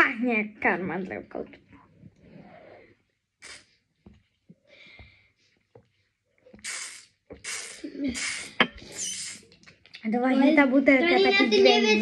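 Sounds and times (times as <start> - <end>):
airy hissing rushes from can: 6.6 - 9.5
person sipping from a can: 6.6 - 9.5.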